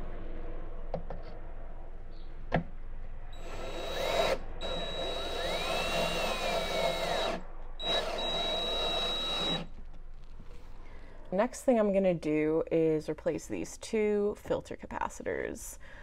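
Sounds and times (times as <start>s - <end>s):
cordless drill whining: 3.4s - 9.7s.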